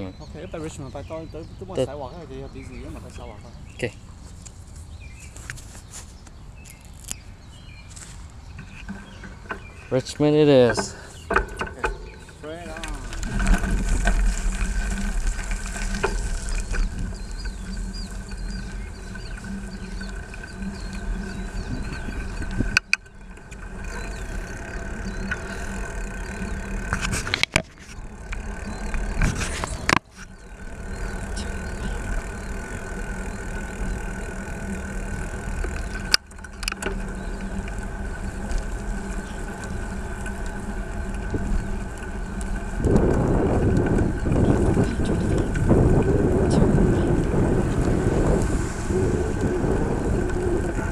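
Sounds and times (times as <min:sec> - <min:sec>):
road traffic engine hum: 0:00.0 - 0:50.9
wind on microphone: 0:10.7 - 0:50.9.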